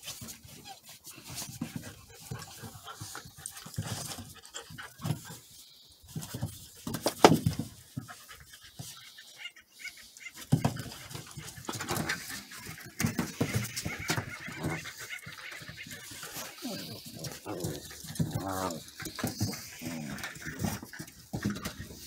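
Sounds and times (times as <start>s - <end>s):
paws scuffling on wooden boards: 0.0s - 9.4s, 10.2s - 22.0s
puppies panting: 0.0s - 22.0s
puppies growling: 10.8s - 22.0s.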